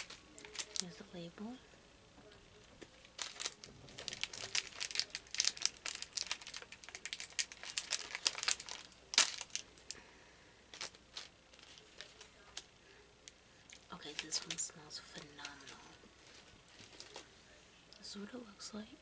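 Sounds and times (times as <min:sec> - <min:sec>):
plastic bag crinkling and tearing: 0:00.0 - 0:01.0, 0:03.0 - 0:10.0, 0:10.7 - 0:12.7, 0:13.9 - 0:17.3.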